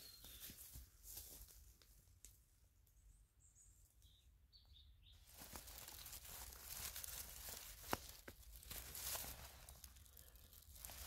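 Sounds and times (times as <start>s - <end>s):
high bird chirps: 0.0s - 0.6s
rustling of dry forest litter: 0.0s - 3.1s, 5.0s - 11.0s.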